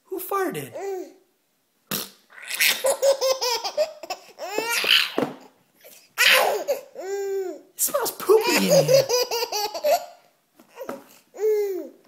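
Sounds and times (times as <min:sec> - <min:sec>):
baby laughing: 0:02.4 - 0:05.2, 0:06.2 - 0:07.6, 0:08.3 - 0:10.2.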